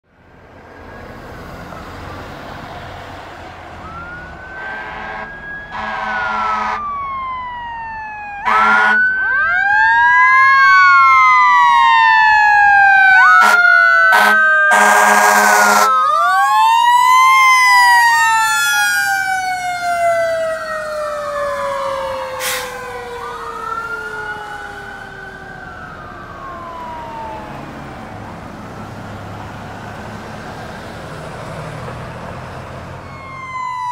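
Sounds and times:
fire engine siren wailing: 0.1 - 33.9
air horn blasts: 4.6 - 6.8, 8.4 - 9.1, 13.3 - 15.9.

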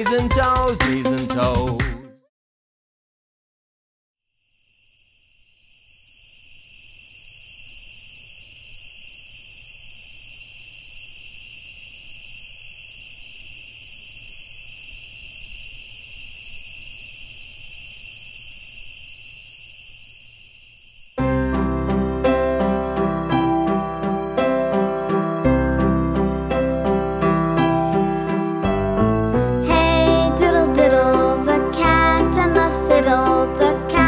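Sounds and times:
piano music: 0.0 - 2.2, 21.2 - 34.0
crickets chirping: 4.3 - 21.6.

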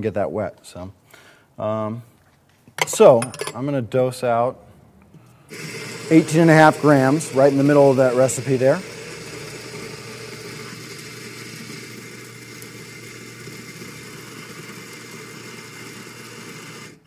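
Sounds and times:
coffee grinder running: 5.5 - 17.0.

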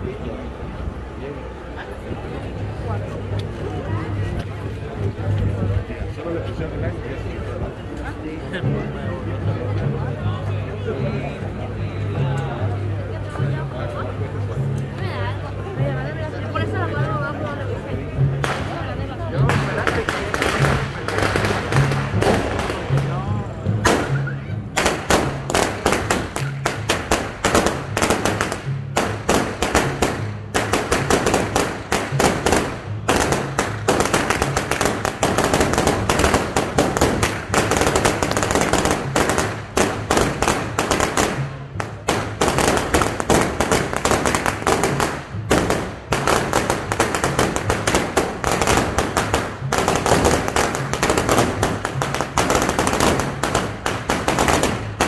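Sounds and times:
firecrackers popping: 18.4 - 55.0.

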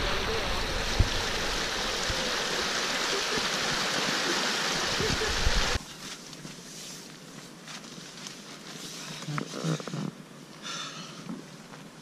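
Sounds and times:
stream water rushing over rock: 0.0 - 5.8.

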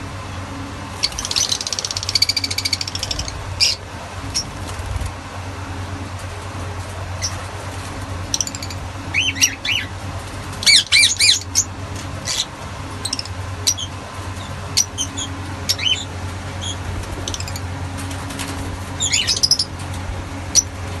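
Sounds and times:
lovebirds chirping: 1.0 - 4.6, 8.2 - 17.8, 18.9 - 19.8.

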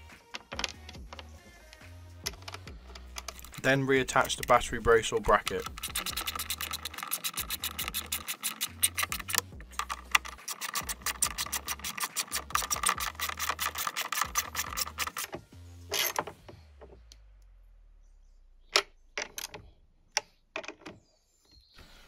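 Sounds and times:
ratchet clicking: 5.4 - 16.2.

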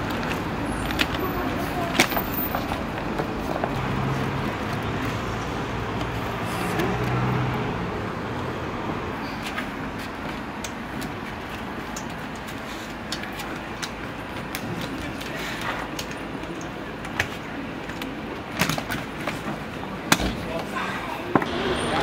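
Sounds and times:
road traffic passing: 0.0 - 22.0.

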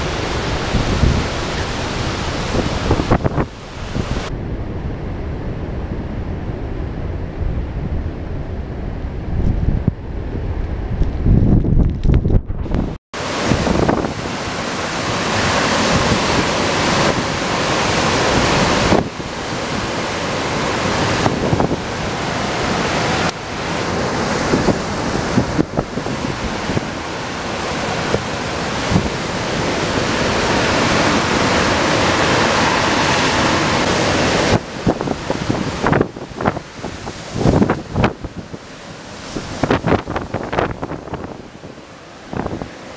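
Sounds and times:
driving rain: 0.0 - 4.3, 13.2 - 42.9
strong wind gusts: 0.0 - 42.9
wind buffeting microphone: 0.0 - 42.9.

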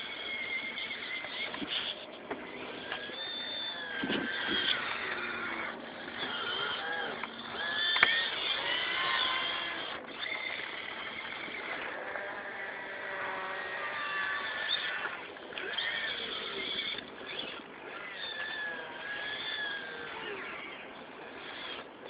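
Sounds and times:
small electric motors whining: 0.0 - 22.0.

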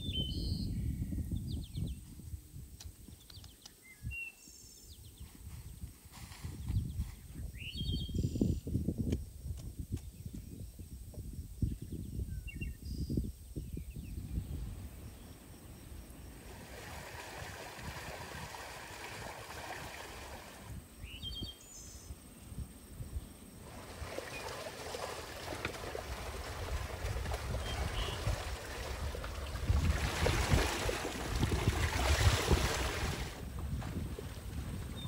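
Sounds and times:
water rushing from spring: 16.3 - 20.8, 23.6 - 33.5
bird chirping: 21.0 - 22.2.

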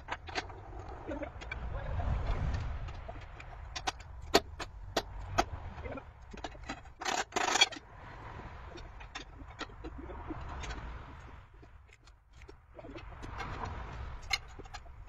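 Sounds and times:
low wind rumble: 0.0 - 15.0
scraping rasp: 0.0 - 15.0
sharp clicks and knocks on metal: 2.4 - 7.9.

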